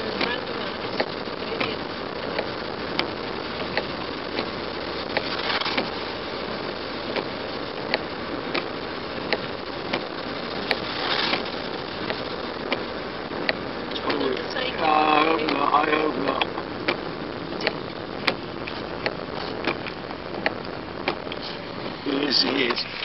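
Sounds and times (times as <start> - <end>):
tyres hissing on wet road: 0.0 - 23.0
light ticks: 1.0 - 5.9, 7.1 - 8.7.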